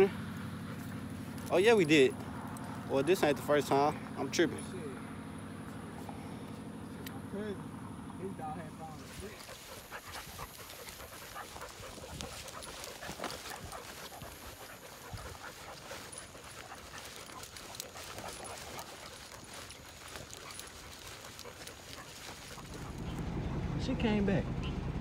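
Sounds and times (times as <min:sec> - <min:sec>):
dog panting: 0:00.0 - 0:04.6, 0:08.4 - 0:23.8
footsteps through grass and brush: 0:08.5 - 0:23.1.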